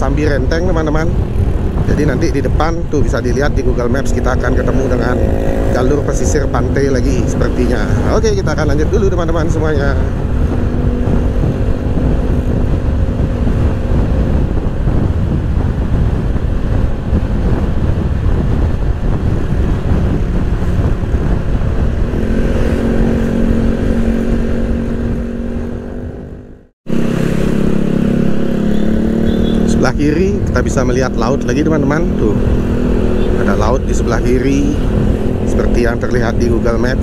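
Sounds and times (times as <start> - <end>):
scooter engine drone: 0.0 - 37.0
wind rushing over microphone: 0.0 - 37.0.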